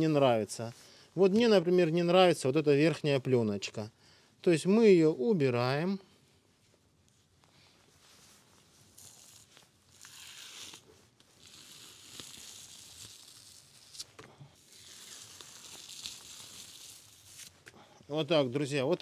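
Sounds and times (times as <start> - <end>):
membrane tearing from raw meat: 9.0 - 17.6.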